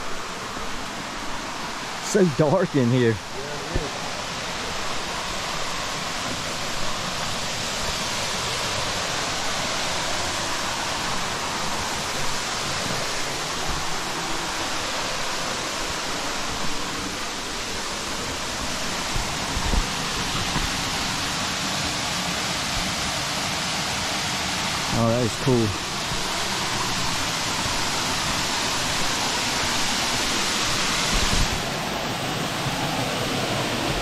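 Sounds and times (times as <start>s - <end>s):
waterfall roaring: 0.0s - 34.0s.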